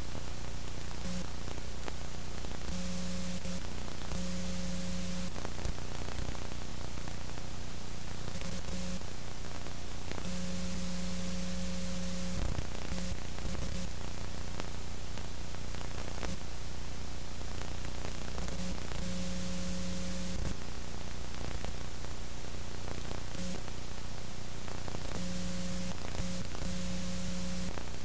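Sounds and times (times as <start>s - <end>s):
low electrical hum: 0.0s - 28.0s
static hiss: 0.0s - 28.0s
buzzing tone: 1.0s - 1.3s, 2.7s - 5.3s, 8.3s - 9.0s, 10.2s - 13.9s, 18.5s - 20.5s, 23.4s - 23.6s, 25.2s - 27.7s.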